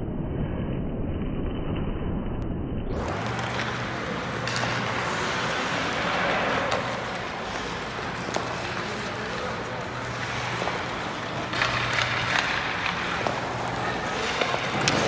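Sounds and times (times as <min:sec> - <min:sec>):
skate blades scraping on ice: 0:03.0 - 0:15.0.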